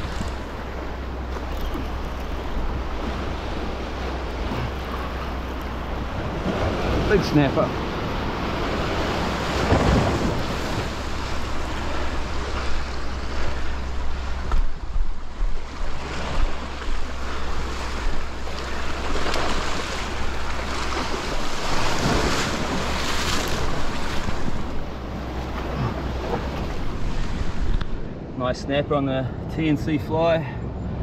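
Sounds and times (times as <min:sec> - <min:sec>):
wind buffeting microphone: 0:00.0 - 0:31.0
surf breaking on rocks: 0:05.9 - 0:27.9.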